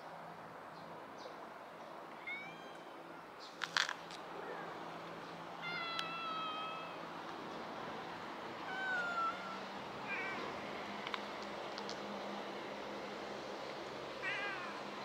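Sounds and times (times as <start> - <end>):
cat meowing: 2.2 - 2.9, 5.6 - 7.0, 8.6 - 10.4, 14.2 - 14.8.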